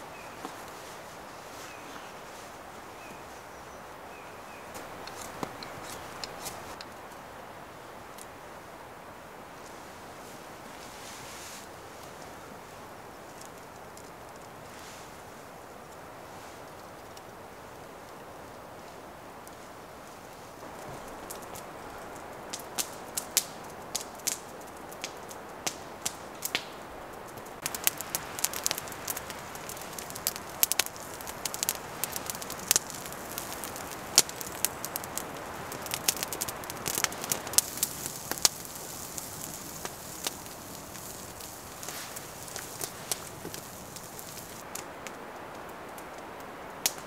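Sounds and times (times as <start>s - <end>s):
low rush of flames: 4.1s - 47.0s
campfire crackling and popping: 4.5s - 7.3s, 11.6s - 18.6s, 19.4s - 47.0s.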